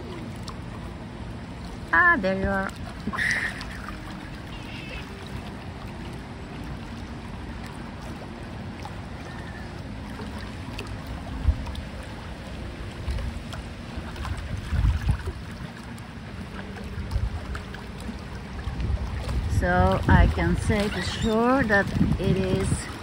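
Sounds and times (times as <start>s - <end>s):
choppy lake water: 0.0s - 23.0s
wind buffeting microphone: 11.1s - 15.8s, 16.9s - 23.0s.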